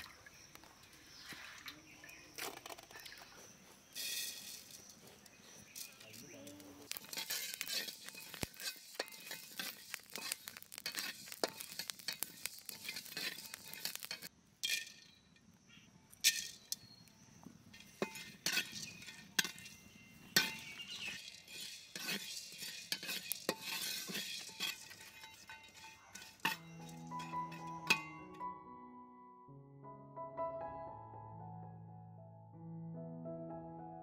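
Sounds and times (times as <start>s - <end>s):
seeds rattling on iron: 0.4s - 15.5s, 16.1s - 28.4s
metal spatula scraping iron pan: 4.0s - 5.0s, 6.9s - 15.2s, 16.2s - 16.8s, 17.8s - 28.4s.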